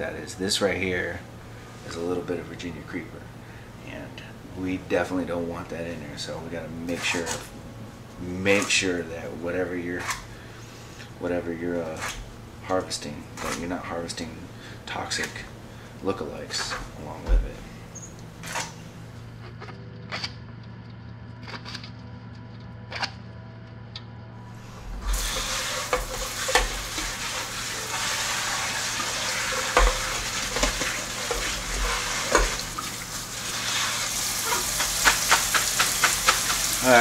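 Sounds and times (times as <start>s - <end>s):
low hum: 10.3s - 29.2s
faucet water spraying on greens: 24.9s - 37.0s.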